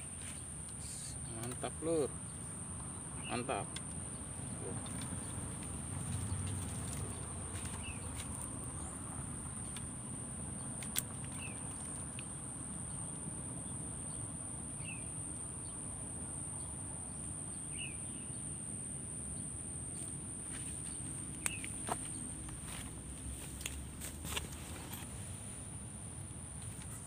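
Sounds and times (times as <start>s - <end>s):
short insect chirp: 0.0s - 23.8s.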